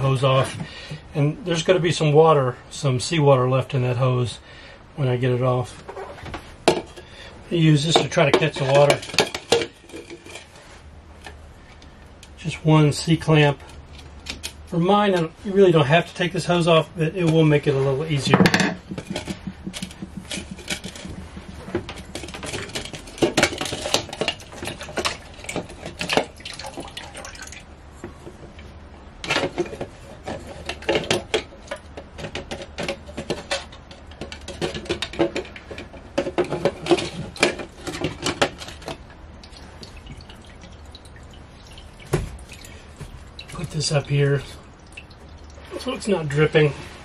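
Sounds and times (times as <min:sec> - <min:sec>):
water dripping into plastic container: 0:25.9 - 0:27.7, 0:39.4 - 0:44.0, 0:44.6 - 0:45.7.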